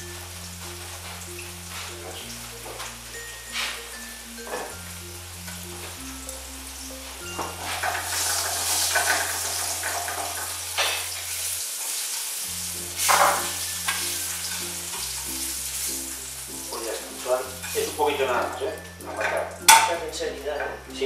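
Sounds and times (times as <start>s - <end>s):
onion sizzling in oil: 0.0s - 21.0s
spatula scraping a pan: 7.4s - 12.1s.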